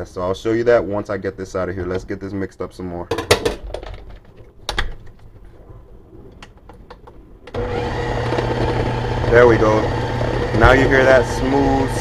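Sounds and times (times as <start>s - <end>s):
blender motor humming: 7.5s - 12.0s.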